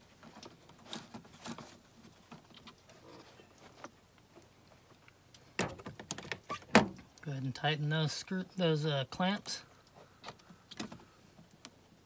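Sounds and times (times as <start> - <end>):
plastic pipe clicks and rustles: 0.0 - 7.3, 9.8 - 12.0.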